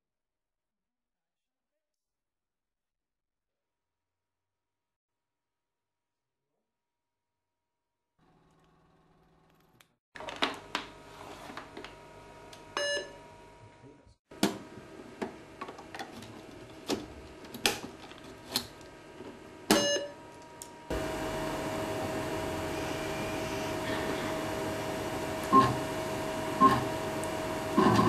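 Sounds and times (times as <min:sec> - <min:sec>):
steady hum with held tone: 0:11.5 - 0:28.0.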